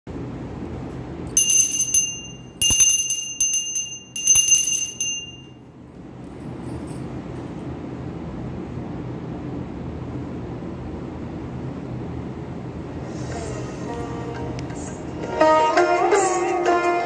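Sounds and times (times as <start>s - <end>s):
low steady hum: 0.1s - 15.3s
hand bell ringing: 1.3s - 5.6s.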